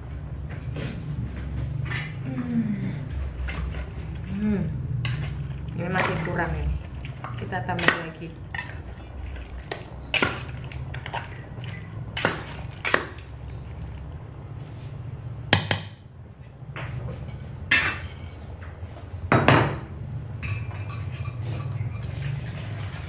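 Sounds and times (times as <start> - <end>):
steady low hum: 0.0 - 22.0
metal spatula scraping a pot: 5.0 - 14.0
kitchenware clattering: 17.2 - 23.0.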